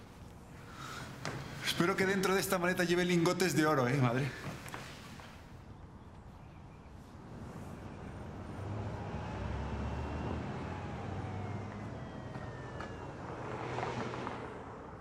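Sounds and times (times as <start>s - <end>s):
car rumbling on road: 7.2s - 15.0s.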